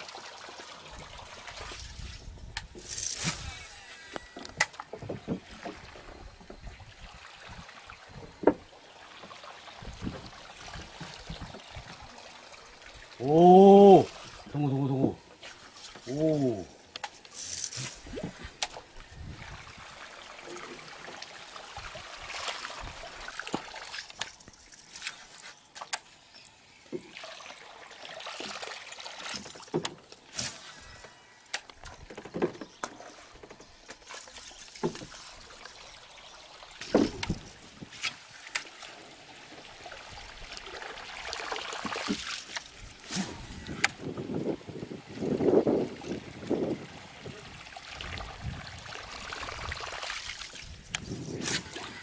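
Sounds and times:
lure splashing on water: 0:32.8 - 0:44.0, 0:48.9 - 0:52.0.

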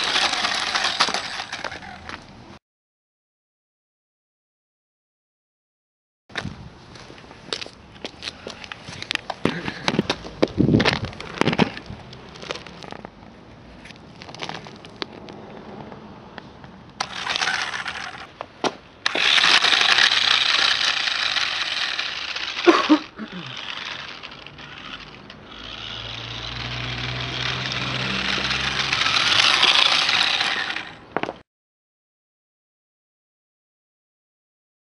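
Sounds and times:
toy truck clicks and rattles: 0:00.0 - 0:02.2, 0:17.0 - 0:18.4, 0:19.0 - 0:31.0
toy truck motor whirring: 0:00.0 - 0:02.2, 0:17.0 - 0:18.4, 0:19.0 - 0:31.1.

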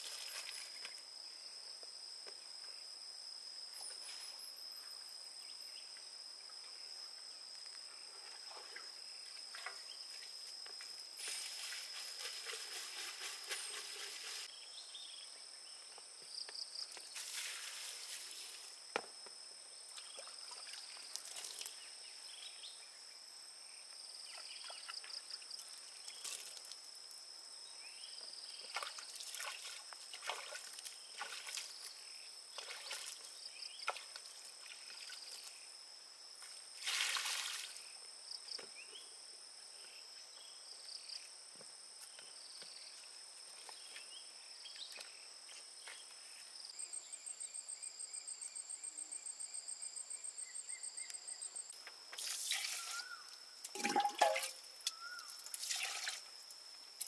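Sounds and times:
pulsing insect trill: 0:00.0 - 0:01.8, 0:02.7 - 0:18.9, 0:46.6 - 0:57.0
crickets trilling: 0:00.0 - 0:57.0
water and mud splashing: 0:17.2 - 0:18.6, 0:28.7 - 0:31.9, 0:32.6 - 0:35.4, 0:36.8 - 0:37.8, 0:52.2 - 0:54.7, 0:55.5 - 0:56.3.

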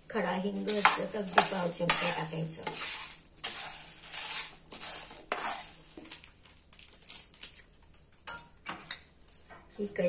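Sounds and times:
metal spatula scraping spices: 0:00.2 - 0:06.3.

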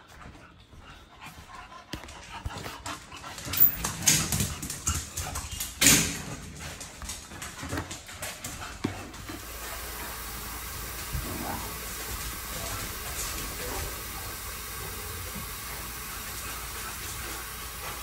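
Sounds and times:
running tap water: 0:08.0 - 0:18.0.

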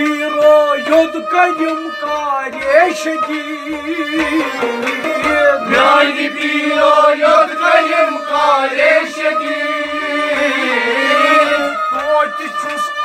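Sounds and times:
clay pot drum beating: 0:00.0 - 0:09.1
bowed sarangi: 0:00.0 - 0:13.0
harmonium: 0:00.0 - 0:13.0
men singing: 0:00.0 - 0:13.0
plucked rabab: 0:00.0 - 0:13.0.

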